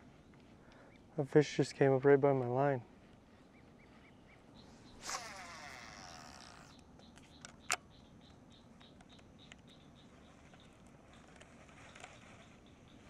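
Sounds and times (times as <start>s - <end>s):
fishing reel spool whining: 5.0s - 6.7s.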